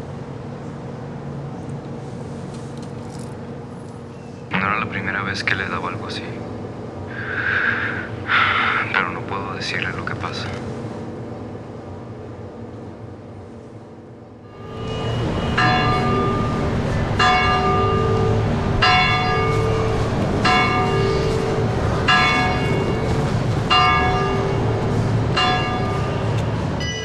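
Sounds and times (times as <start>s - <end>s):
church bell tolling: 14.5s - 27.0s.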